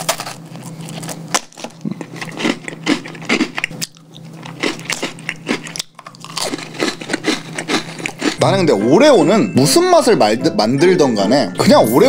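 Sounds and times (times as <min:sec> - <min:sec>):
cookie crunching when chewed: 0:00.0 - 0:08.5.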